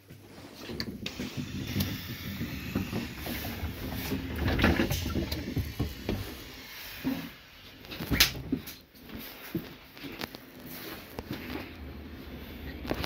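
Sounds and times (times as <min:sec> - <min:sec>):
footsteps: 0:00.0 - 0:13.0
sliding door mechanism: 0:00.9 - 0:06.4.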